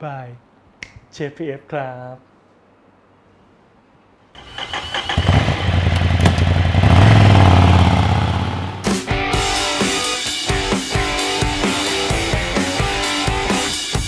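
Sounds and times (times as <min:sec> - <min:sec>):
motorcycle engine starting and revving: 0:04.4 - 0:08.9
music: 0:08.8 - 0:14.0.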